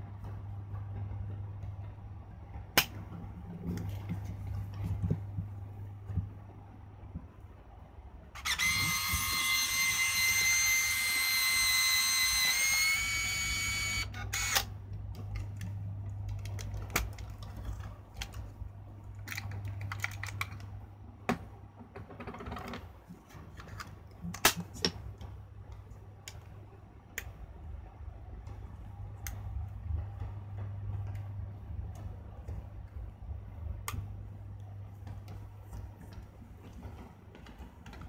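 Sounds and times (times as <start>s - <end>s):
camera film rewind motor whine: 8.4s - 14.7s.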